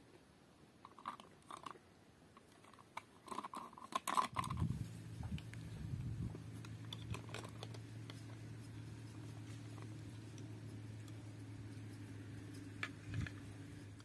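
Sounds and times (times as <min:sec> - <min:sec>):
plastic utensils clicking on pot: 0:02.4 - 0:04.6
steady low hum: 0:04.3 - 0:14.0.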